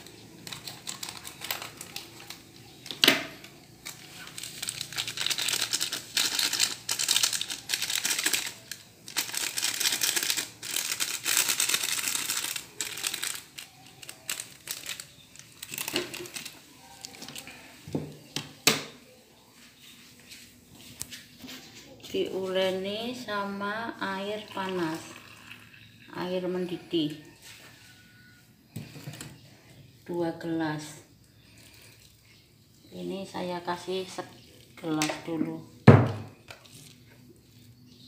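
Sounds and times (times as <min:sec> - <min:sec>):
plastic sachet crinkling: 0:00.0 - 0:02.8, 0:03.5 - 0:17.6.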